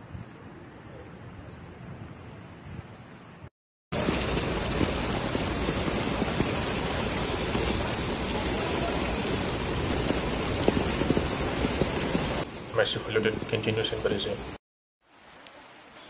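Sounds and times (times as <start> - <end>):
heavy rain pouring: 3.9 - 16.0.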